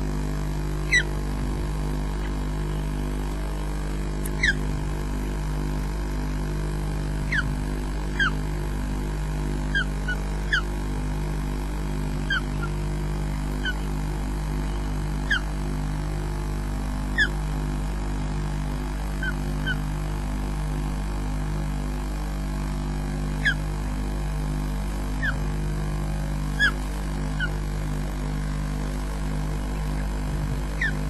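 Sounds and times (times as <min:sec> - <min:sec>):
steady low hum: 0:00.0 - 0:31.0
ospreys whistled calls: 0:00.9 - 0:01.1, 0:04.2 - 0:04.7, 0:07.3 - 0:07.6, 0:08.2 - 0:08.4, 0:09.7 - 0:10.7, 0:12.3 - 0:12.8, 0:15.3 - 0:15.5, 0:17.2 - 0:17.4, 0:23.4 - 0:23.6, 0:25.2 - 0:25.4, 0:30.8 - 0:31.0.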